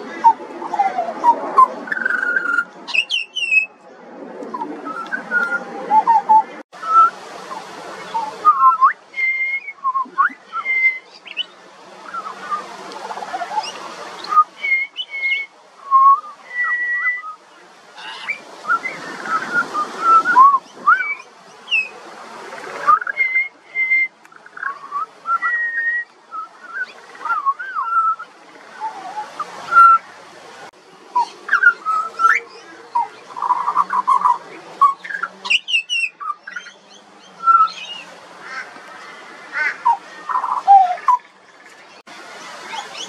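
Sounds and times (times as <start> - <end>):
bird whistling song: 0.2 - 3.8, 4.5 - 7.2, 8.0 - 12.6, 13.4 - 17.4, 18.0 - 21.9, 22.8 - 30.1, 31.2 - 38.1, 39.8 - 41.3.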